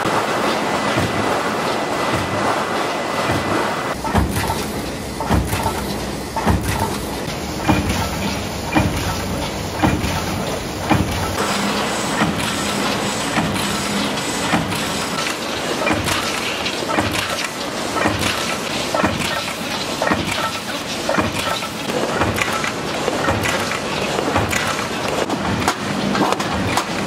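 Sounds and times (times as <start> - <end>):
machine din: 3.3 - 15.3.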